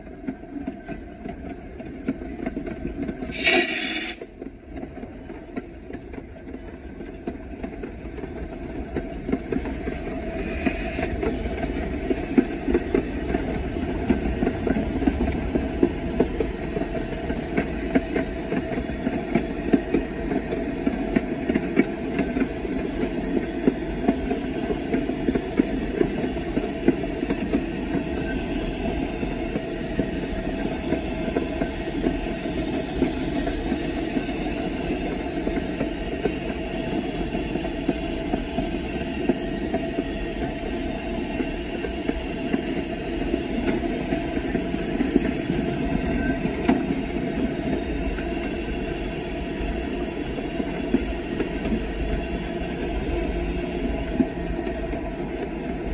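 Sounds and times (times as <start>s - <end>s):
train rolling rumble: 0.0s - 55.9s
steam hissing: 3.2s - 4.3s, 9.4s - 13.6s.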